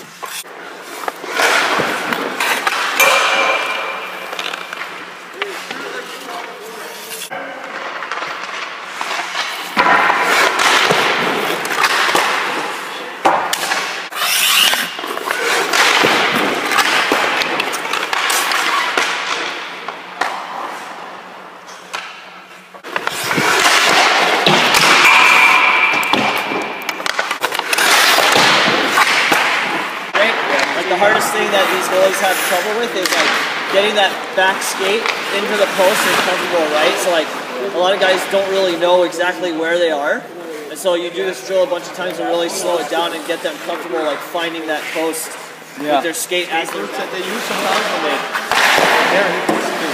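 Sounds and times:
skates scraping on ice: 0.0s - 3.0s, 3.6s - 21.0s, 22.5s - 39.2s, 40.6s - 49.9s
stick and puck clacks: 0.1s - 20.9s, 21.6s - 37.2s, 46.4s - 49.9s.

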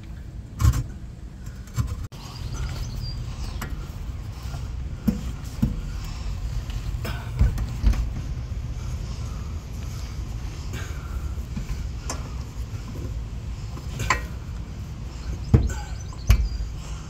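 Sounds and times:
steady low rumble: 0.0s - 17.0s
sharp knocks and clunks: 5.0s - 6.0s, 7.0s - 8.4s, 15.4s - 16.7s.

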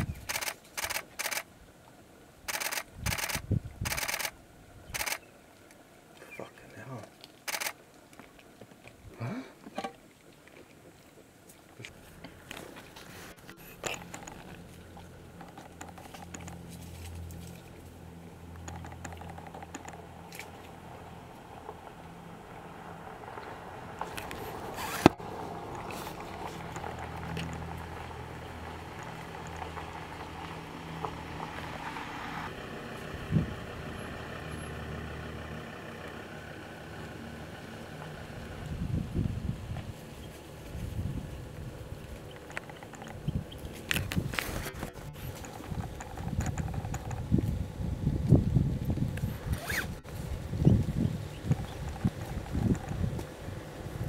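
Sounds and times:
camera shutter clicking: 0.2s - 1.5s, 2.5s - 4.3s, 5.0s - 5.2s, 7.5s - 7.8s
vehicle engine idling: 11.9s - 49.3s.

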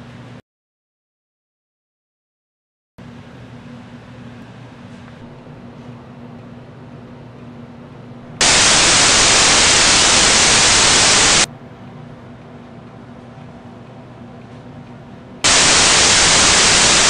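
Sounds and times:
faint hum: 8.0s - 11.5s, 15.4s - 17.0s
white-noise static: 8.2s - 11.5s, 15.4s - 17.0s.

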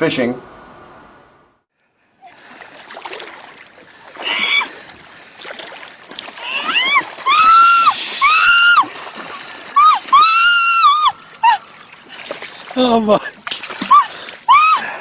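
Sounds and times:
water splashing: 2.2s - 15.0s
woman shrieking: 4.2s - 4.7s, 6.4s - 8.9s, 9.8s - 11.7s, 13.8s - 15.0s.

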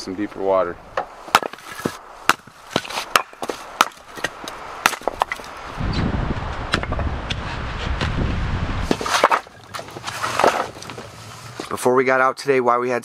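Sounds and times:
axe splitting wood: 1.0s - 5.5s, 6.7s - 7.4s, 8.9s - 11.0s.

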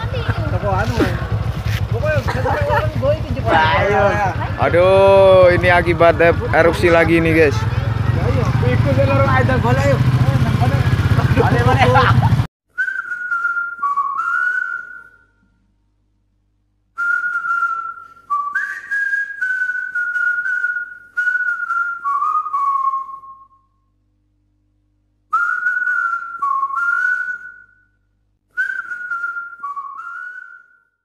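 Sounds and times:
person whistling a melody: 12.7s - 15.4s, 17.0s - 23.7s, 25.3s - 31.0s.

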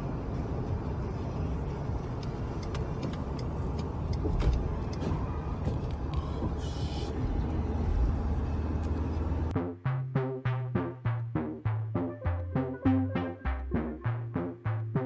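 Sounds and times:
car interior road noise: 0.0s - 9.6s.

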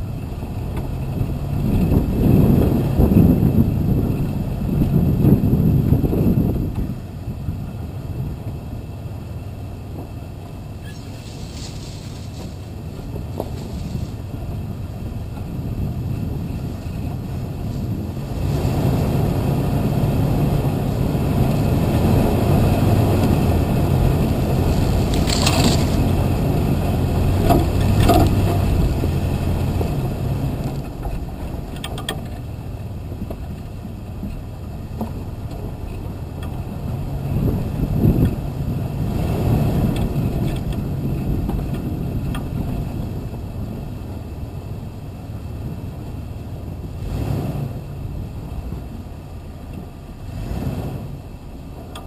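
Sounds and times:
vehicle engine running: 0.0s - 52.0s
knocks and rattles from bumps: 27.1s - 36.7s.

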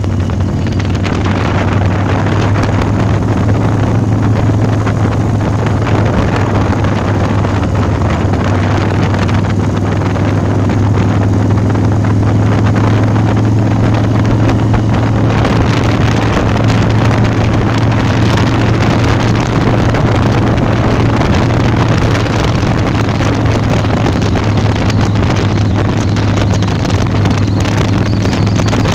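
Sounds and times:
motorcycle engine cruising: 0.0s - 28.9s
wind rushing over microphone: 0.0s - 28.9s.

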